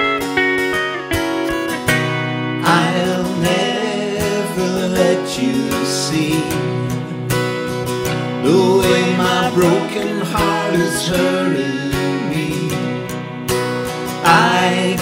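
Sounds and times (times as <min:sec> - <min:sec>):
electric guitar ballad: 0:00.0 - 0:15.0
strummed acoustic guitar: 0:00.0 - 0:15.0
two men singing together: 0:02.6 - 0:07.0, 0:08.4 - 0:13.1, 0:14.2 - 0:15.0.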